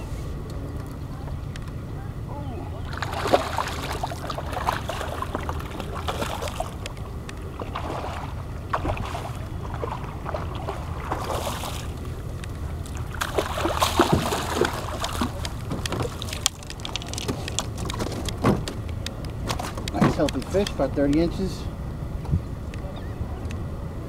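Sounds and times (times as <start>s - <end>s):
wind rumble on microphone: 0.0s - 24.0s
water lapping against kayak: 2.0s - 18.8s.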